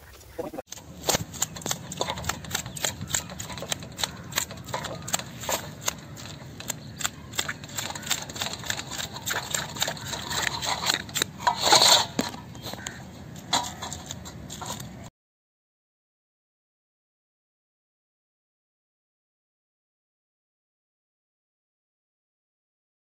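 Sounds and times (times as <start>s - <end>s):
fish scales being scraped: 0.7s - 15.0s.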